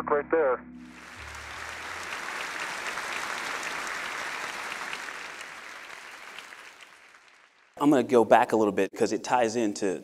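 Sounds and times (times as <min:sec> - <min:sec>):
crowd applauding: 0:00.9 - 0:08.0.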